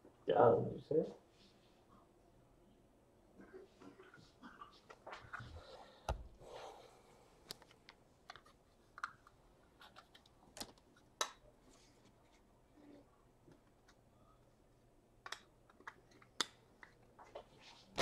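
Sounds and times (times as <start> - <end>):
light clicks and handling noises: 7.4 - 14.1, 15.2 - 18.0.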